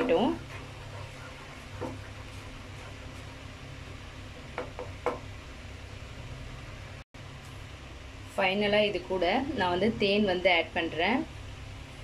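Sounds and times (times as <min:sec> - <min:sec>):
spatula stirring thick sauce: 0:00.0 - 0:04.9.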